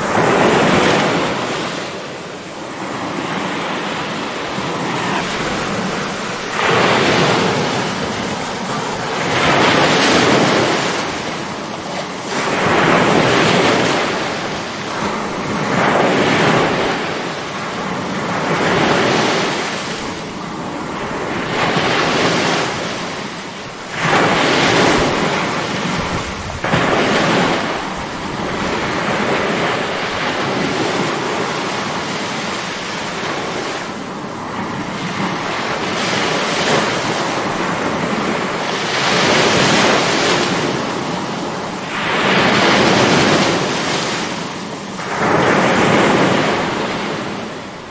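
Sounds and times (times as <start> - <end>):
stormy surf waves breaking: 0.0 - 47.9
loud wave crashes: 3.6 - 11.4.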